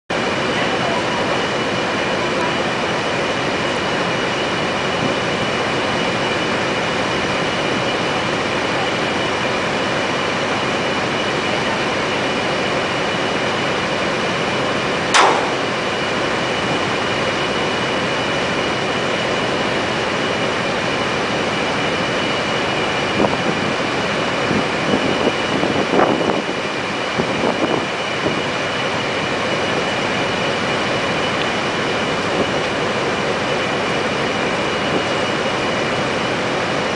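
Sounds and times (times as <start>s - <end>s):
heavy machinery with high whine: 0.1s - 36.9s
machinery knocks: 15.2s - 16.1s.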